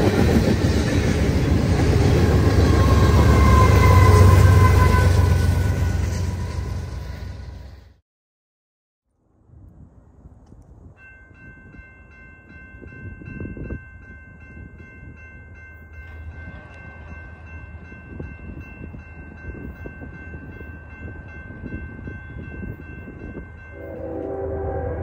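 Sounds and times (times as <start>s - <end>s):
crossing warning bell ringing: 0.0s - 7.5s, 11.0s - 25.0s
freight train rumble: 0.0s - 8.0s, 12.5s - 25.0s
locomotive air horn: 2.5s - 7.8s, 23.7s - 25.0s.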